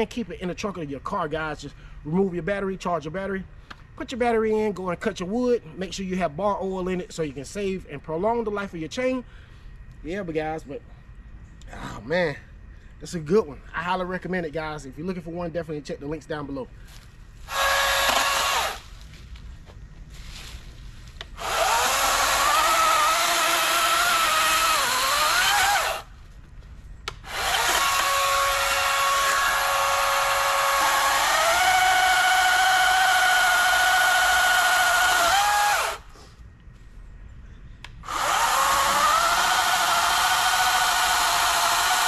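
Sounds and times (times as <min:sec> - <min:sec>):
electric chainsaw cutting wood: 0:17.5 - 0:18.9, 0:21.3 - 0:26.1, 0:27.2 - 0:36.0, 0:38.0 - 0:42.0.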